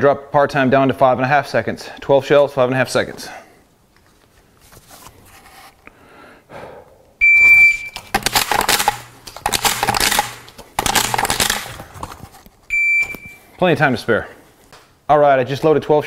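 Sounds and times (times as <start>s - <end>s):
shot timer beep: 7.2s - 8.1s, 12.7s - 13.4s
shotgun shells loading clicks: 7.9s - 12.2s.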